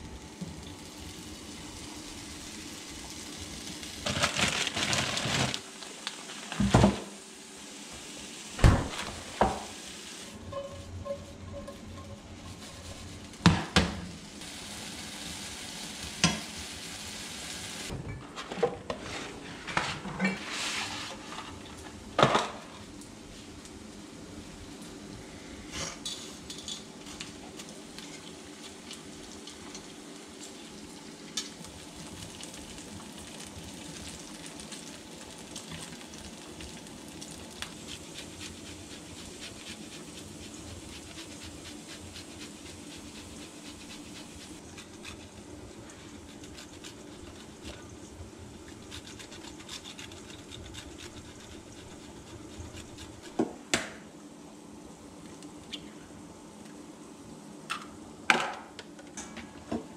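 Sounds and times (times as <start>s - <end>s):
meat sizzling in a skillet: 0.2s - 4.2s, 9.2s - 10.4s, 14.2s - 17.9s, 27.6s - 44.7s
cheese scraping on a grater: 48.8s - 53.4s.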